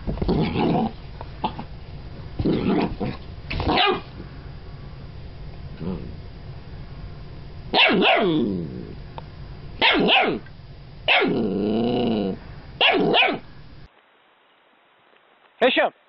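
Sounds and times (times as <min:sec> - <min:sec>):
puppy barking: 0:03.6 - 0:04.1, 0:07.7 - 0:08.4, 0:09.8 - 0:10.5, 0:11.1 - 0:11.4, 0:12.8 - 0:13.5.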